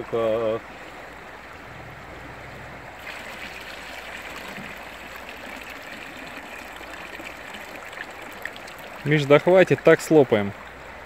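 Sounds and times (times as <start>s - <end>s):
river running over stones: 0.1s - 11.0s
water pouring from container: 3.0s - 10.1s.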